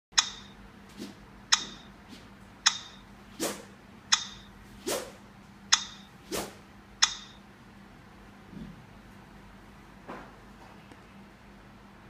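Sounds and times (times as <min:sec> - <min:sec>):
shuttlecock hit clicks: 0:00.2 - 0:00.6, 0:01.5 - 0:01.9, 0:02.6 - 0:03.0, 0:04.1 - 0:04.5, 0:05.7 - 0:06.1, 0:07.0 - 0:07.4
racket swishing through air: 0:03.3 - 0:03.7, 0:04.8 - 0:05.2, 0:06.2 - 0:06.6.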